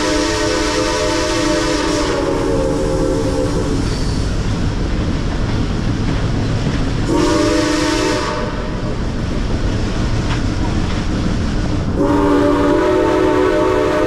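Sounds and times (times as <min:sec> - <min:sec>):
steam locomotive chime whistle: 0:00.0 - 0:04.3, 0:07.1 - 0:08.7, 0:12.0 - 0:14.0
low rumble of train: 0:00.0 - 0:14.0.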